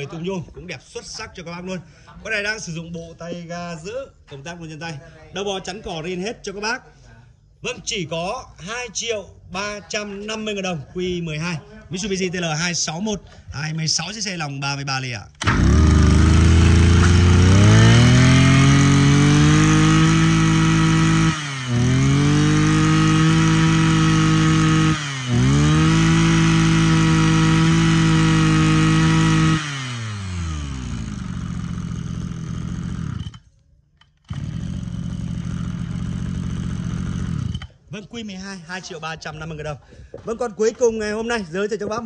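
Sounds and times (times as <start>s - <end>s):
brush cutter engine revving: 15.4s - 37.9s.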